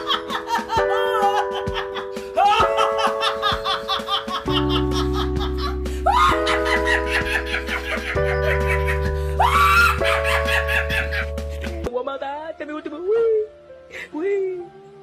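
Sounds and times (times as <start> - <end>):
woman laughing heartily: 0.0 - 11.8
background music of held chords: 0.0 - 15.0.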